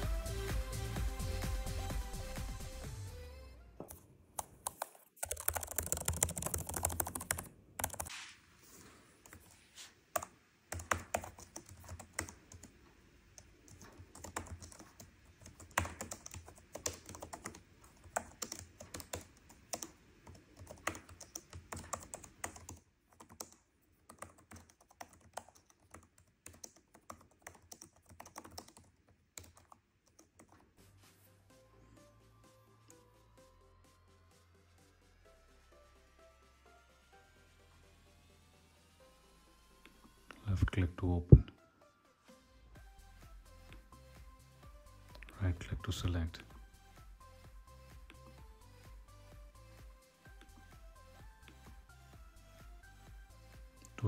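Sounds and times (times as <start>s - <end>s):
keyboard typing clicks: 3.9s - 8.1s, 10.2s - 12.7s, 13.4s - 30.6s.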